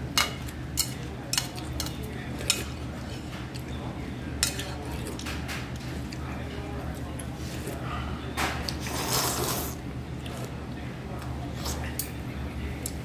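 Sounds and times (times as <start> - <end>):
metal chopsticks clinking on bowl: 0.2 - 2.7.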